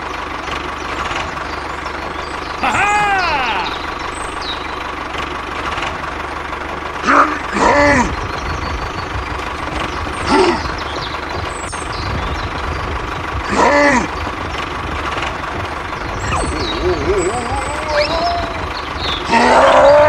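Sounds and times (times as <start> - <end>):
toy tractor engine chugging: 0.0 - 20.0
voice-like cries: 2.6 - 3.9, 16.3 - 20.0.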